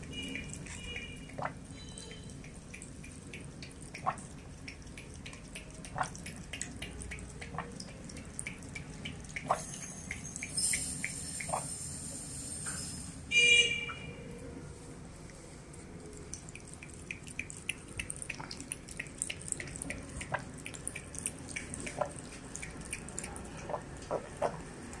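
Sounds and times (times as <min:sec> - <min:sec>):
cat lapping water: 0:00.0 - 0:11.7, 0:15.2 - 0:25.0.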